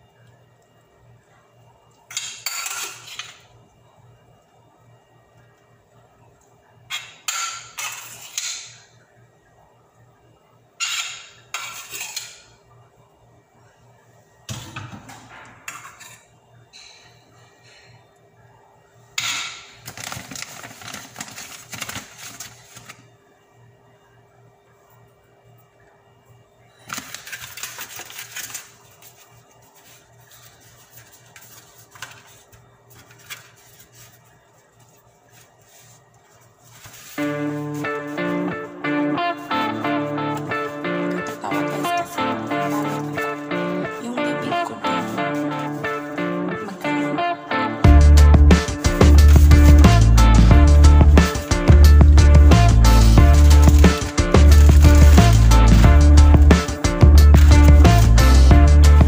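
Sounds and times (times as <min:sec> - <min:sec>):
tortillas rustling on metal plate: 0:19.7 - 0:23.1, 0:26.8 - 0:38.4, 0:53.3 - 0:55.8
steady low hum: 0:28.4 - 0:59.0
guitar music: 0:37.2 - 0:59.0.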